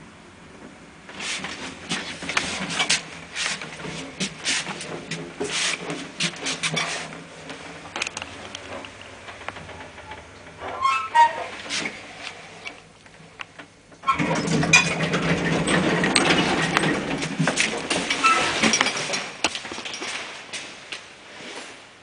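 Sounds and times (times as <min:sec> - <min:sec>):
lift door mechanism rattling: 0:14.0 - 0:20.0.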